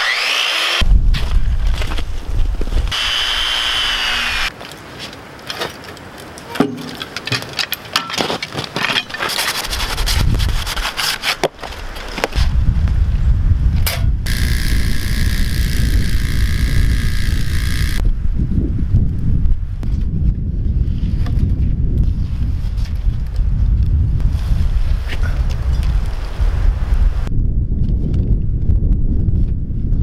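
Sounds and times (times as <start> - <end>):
power tool running: 0.0 - 0.8, 2.9 - 4.5, 14.3 - 18.0
wood sawing: 0.0 - 0.8, 2.9 - 4.5, 9.1 - 11.5, 14.3 - 18.0
wind rumbling on microphone: 0.8 - 6.6, 8.9 - 30.0
knocks and scraping: 4.2 - 12.6.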